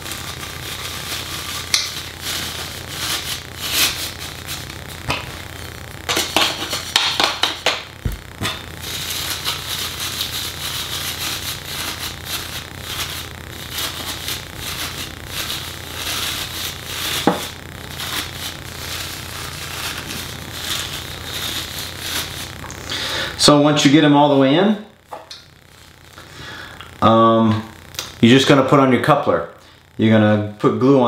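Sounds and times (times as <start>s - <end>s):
sharp taps and thump: 6.4s - 8.6s.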